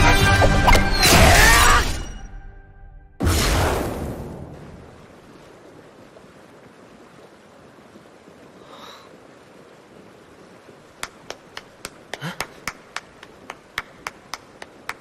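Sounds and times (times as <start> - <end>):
faint rushing water: 3.2 - 15.0.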